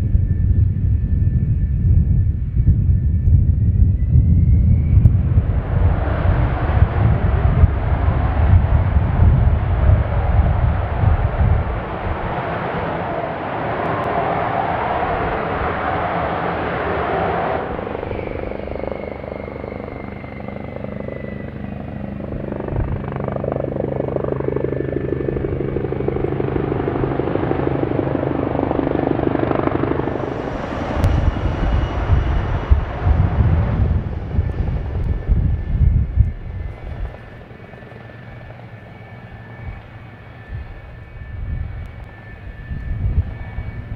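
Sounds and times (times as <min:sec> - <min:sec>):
jet engines rushing with turbine whine: 0:00.0 - 0:43.9
low rumbling gusts: 0:00.0 - 0:43.9.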